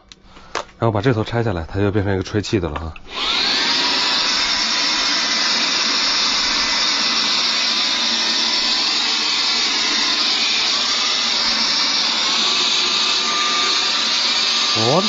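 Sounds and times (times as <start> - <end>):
mini vacuum blower hissing: 3.1 - 15.0.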